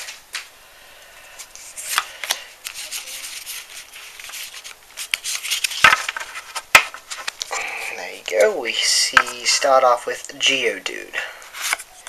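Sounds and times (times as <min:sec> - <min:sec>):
foil wrapper crinkling: 0:01.3 - 0:08.5
cards sliding against each other: 0:01.4 - 0:07.5, 0:11.5 - 0:12.0.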